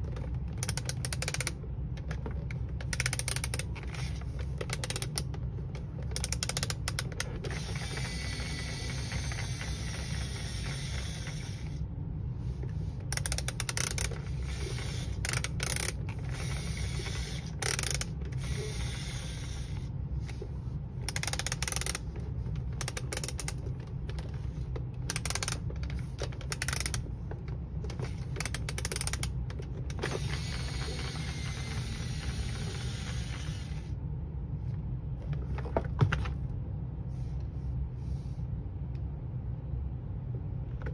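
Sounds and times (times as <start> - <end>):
steady low hum: 0.0 - 40.9
plastic toy gears clicking: 0.5 - 1.6, 2.8 - 5.3, 6.0 - 11.7, 13.1 - 19.8, 21.0 - 27.1, 27.9 - 33.9.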